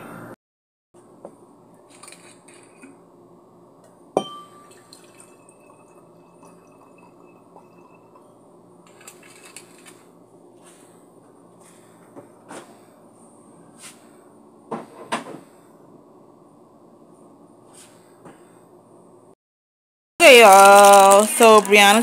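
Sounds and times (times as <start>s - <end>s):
sharp glass clink: 4.2s - 4.8s
wine pouring into a glass: 4.2s - 8.3s.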